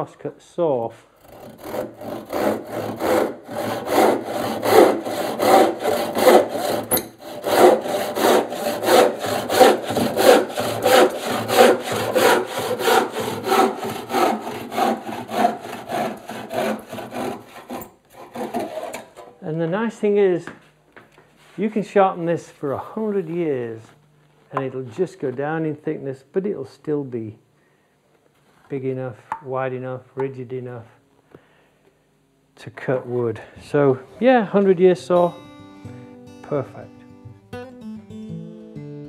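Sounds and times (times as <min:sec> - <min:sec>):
handsaw sawing wood: 0:01.2 - 0:19.2.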